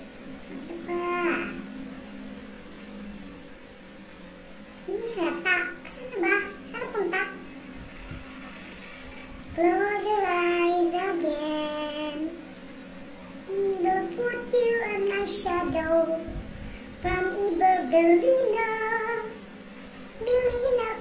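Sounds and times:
high voice singing unaccompanied: 0.5 - 1.7, 4.9 - 7.6, 9.5 - 12.4, 13.5 - 19.4, 20.2 - 21.0.

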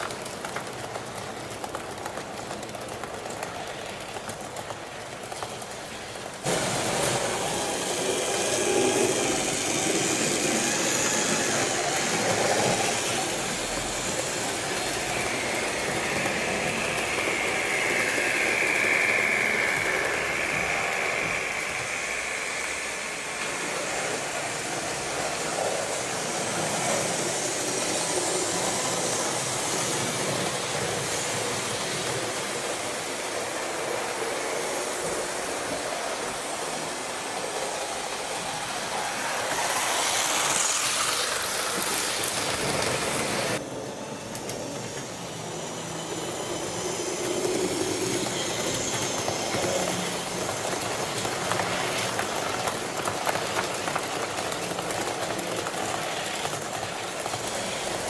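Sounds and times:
model train wheels clicking on rail: 0.0 - 43.6, 44.3 - 58.0.

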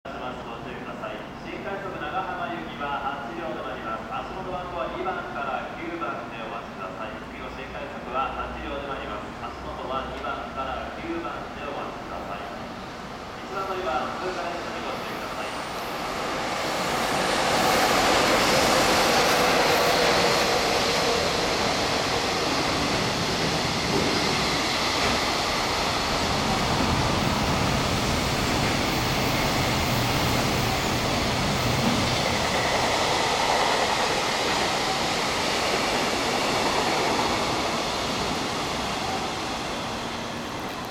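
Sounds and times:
train wheels rolling on track: 13.2 - 40.9.

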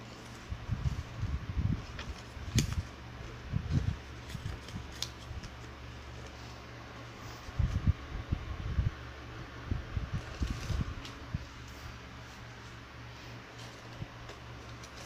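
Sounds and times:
paper crinkling and folding: 0.0 - 6.6, 10.2 - 15.0.

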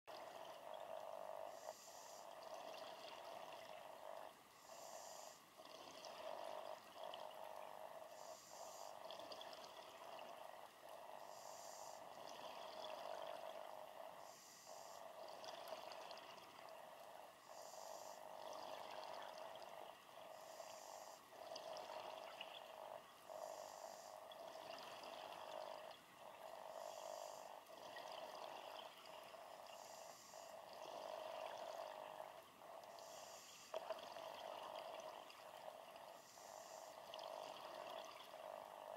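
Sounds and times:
bubbling exhale underwater: 0.1 - 17.3
regulator inhale hiss: 32.9 - 33.8.

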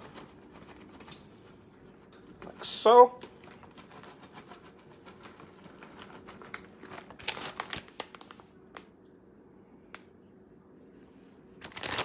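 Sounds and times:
packaging crinkling: 5.0 - 8.9, 11.6 - 12.0.

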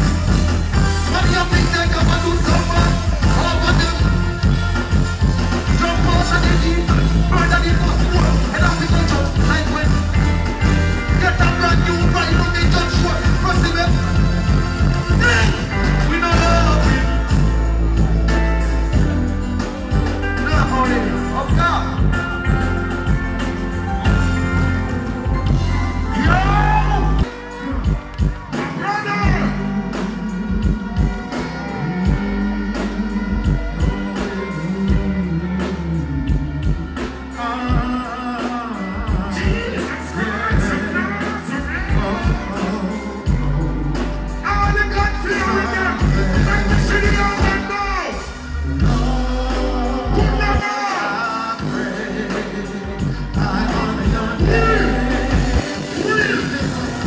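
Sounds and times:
music with drums bass and guitar: 0.0 - 57.0
person singing: 25.9 - 57.0.

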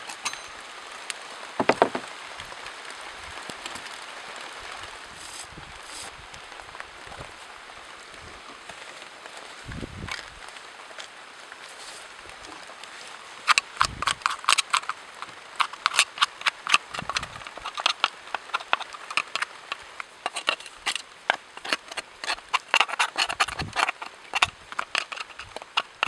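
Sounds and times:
metal tool clicking and scraping: 0.0 - 0.6, 13.5 - 26.0.

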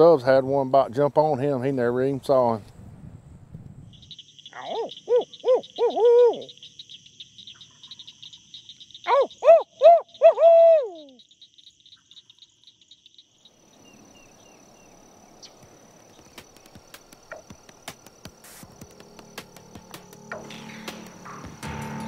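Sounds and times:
high pulsing insect trill: 2.8 - 22.0
owl hooting: 4.5 - 6.9, 9.0 - 11.2.

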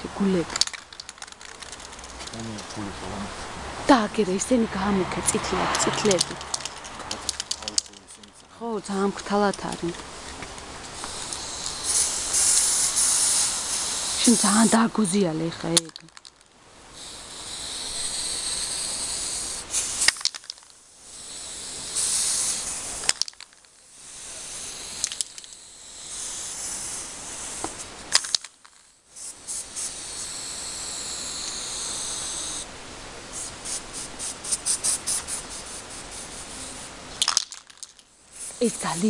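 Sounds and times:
spray paint can hissing: 0.4 - 2.7, 5.6 - 7.9, 9.0 - 16.3, 17.0 - 32.7, 33.3 - 39.0
spray can mixing ball rattling: 0.5 - 2.8, 6.1 - 8.4, 11.0 - 14.7, 21.9 - 23.8, 24.8 - 25.6, 33.4 - 36.6, 37.2 - 39.0.

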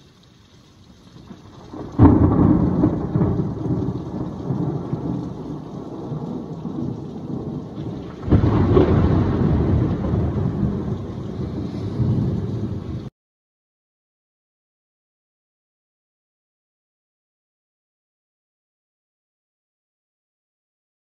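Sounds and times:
rain falling: 0.0 - 13.1
thunder rumbling: 0.7 - 13.1.

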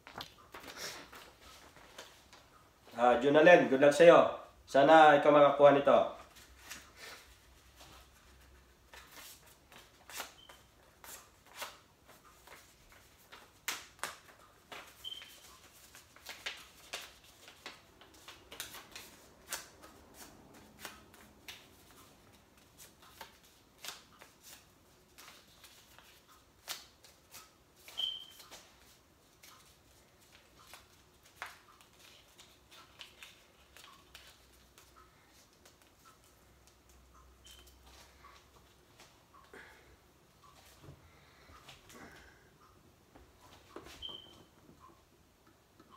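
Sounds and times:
paper crinkling: 6.3 - 36.8.

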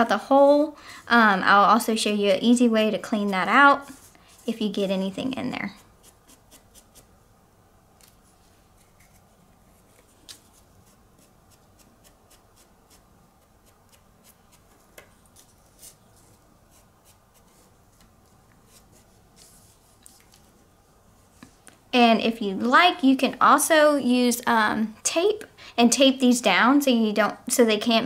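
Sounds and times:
foam brush scratchy strokes: 1.0 - 7.2, 8.2 - 21.4.

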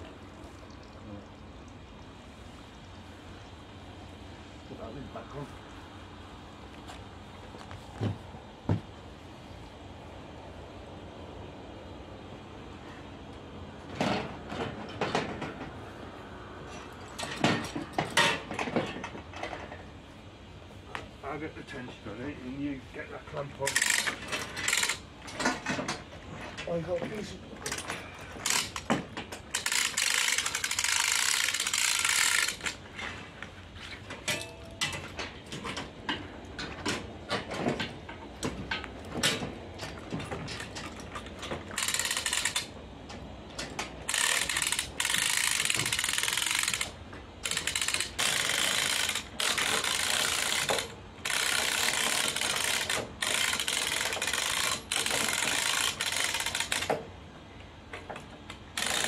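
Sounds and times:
ratchet strap clicking: 23.7 - 25.0, 27.6 - 28.9, 29.5 - 32.8, 41.7 - 42.7, 44.0 - 57.0, 58.8 - 59.0.

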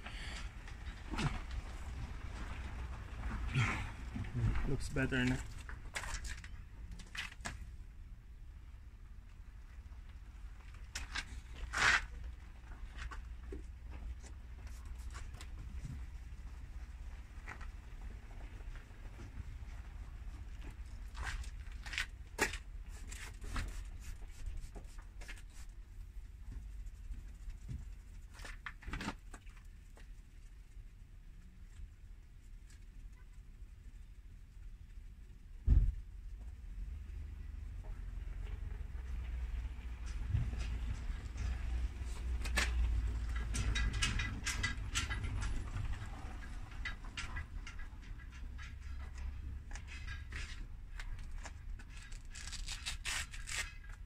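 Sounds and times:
low steady hum: 0.0 - 54.0
sandpaper scraping plastic: 21.2 - 25.8, 51.2 - 54.0.

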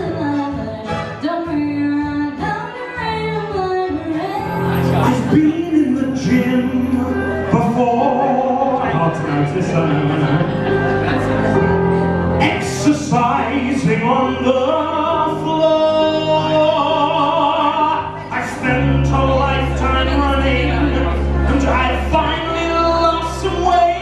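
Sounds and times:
backing music: 0.0 - 24.0
man singing into microphone: 4.6 - 10.8, 12.4 - 24.0.

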